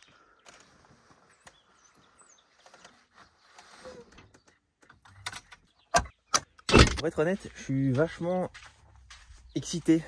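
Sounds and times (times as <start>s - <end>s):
faint bird chirps: 0.0s - 6.4s.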